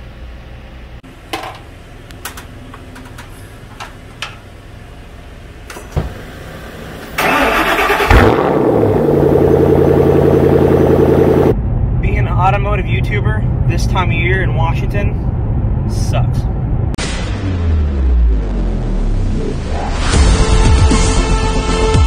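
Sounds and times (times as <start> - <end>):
car engine starting and idling: 1.0 - 19.9
thump: 6.0 - 6.2.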